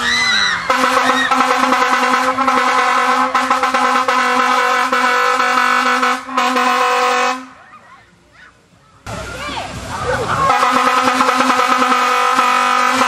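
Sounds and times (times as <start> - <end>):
air horn blast: 0.7 - 7.6, 10.5 - 13.0.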